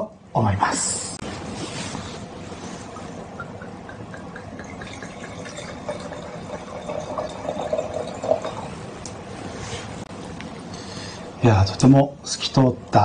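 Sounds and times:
wine pouring into a glass: 3.0s - 8.9s.

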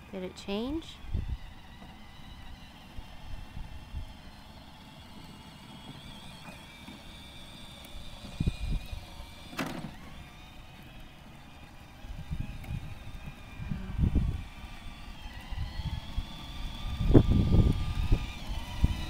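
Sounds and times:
electric motors whining: 0.0s - 19.0s
wind buffeting microphone: 1.0s - 1.8s, 2.4s - 4.2s, 8.0s - 9.4s, 12.0s - 19.0s.

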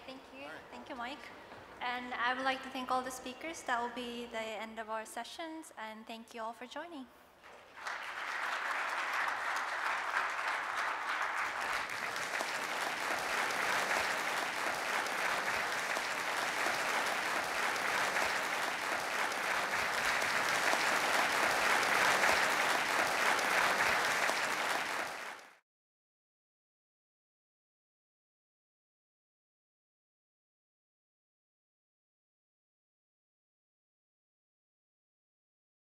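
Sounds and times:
audience applauding: 7.4s - 25.6s.

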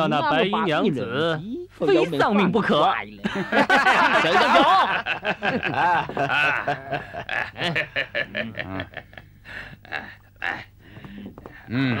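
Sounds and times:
man chuckling: 5.5s - 9.2s.

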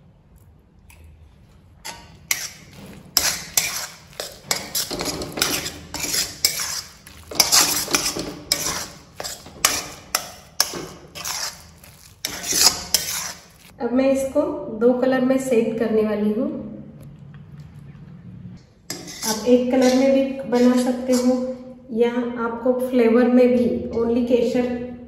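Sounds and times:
spatula scraping metal pan: 1.8s - 13.7s, 18.9s - 21.6s.

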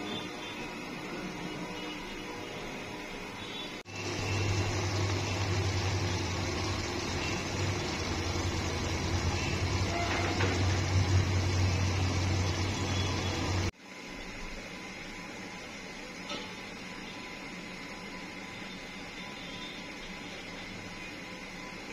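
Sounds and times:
soup simmering in a pot: 3.9s - 13.7s.

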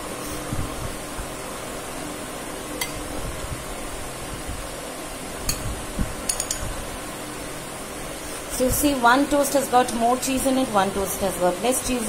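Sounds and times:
metal spoon clinking on ceramic plate: 6.3s - 6.7s.

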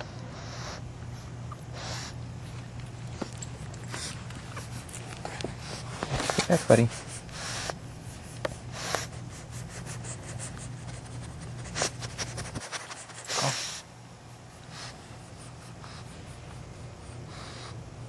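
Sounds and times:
puppy snorts: 0.0s - 2.4s, 3.2s - 13.9s, 14.6s - 17.9s
puppies snuffling: 0.0s - 18.0s
steady low hum: 0.0s - 18.0s
small rustles and clicks: 2.4s - 6.6s.

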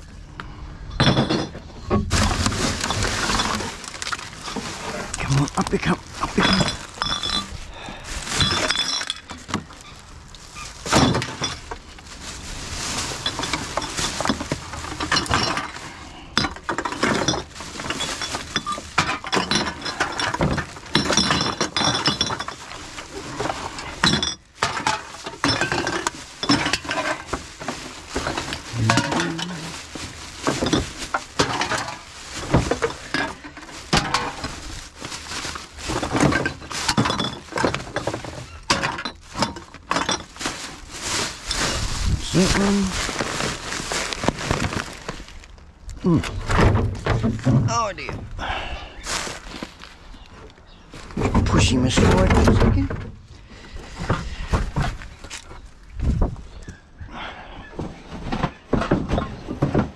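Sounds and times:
cans and bottles clinking: 0.9s - 11.9s, 12.8s - 45.1s.

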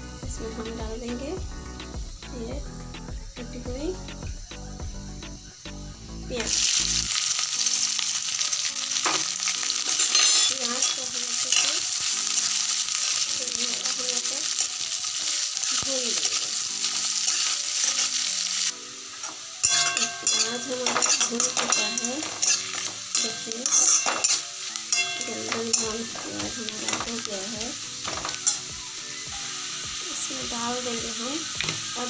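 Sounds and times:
onions sizzling in hot oil: 0.0s - 32.0s
metal spatula stirring: 9.0s - 27.2s.

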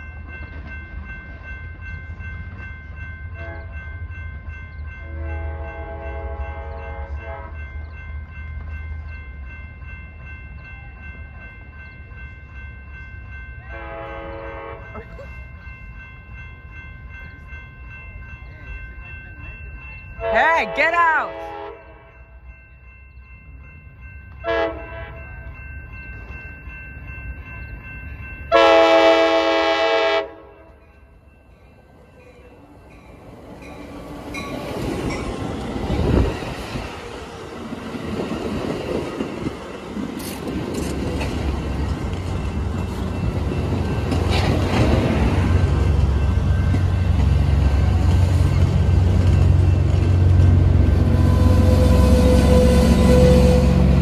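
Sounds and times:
train rumble and wheel noise: 0.0s - 54.0s
train horn blast: 3.4s - 3.8s, 5.0s - 7.6s, 13.7s - 15.0s, 20.2s - 22.1s, 24.4s - 25.2s, 28.5s - 30.6s, 51.0s - 54.0s.

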